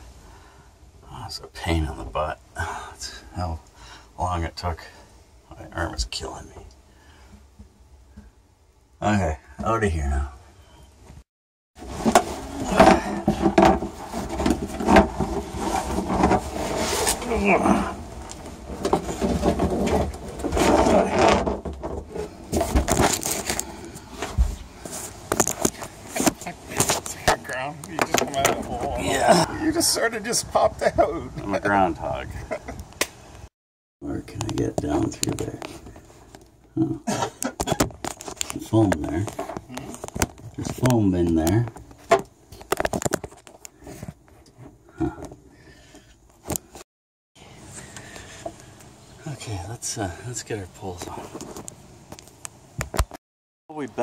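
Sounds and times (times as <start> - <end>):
clothing rustling: 11.8 - 21.2
body scraping against hatch edges: 11.8 - 27.3.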